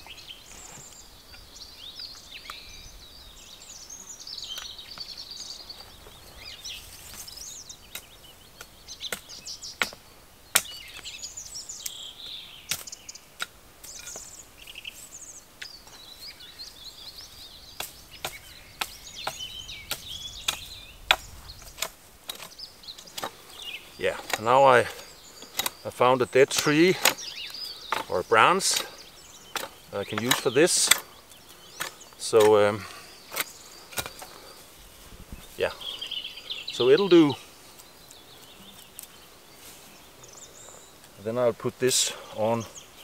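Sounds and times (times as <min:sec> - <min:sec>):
songbirds singing: 0:00.0 - 0:43.0
hatchet chopping a branch: 0:07.9 - 0:11.0, 0:12.7 - 0:14.3, 0:17.8 - 0:23.4, 0:25.4 - 0:25.8, 0:26.4 - 0:31.1, 0:33.3 - 0:34.3.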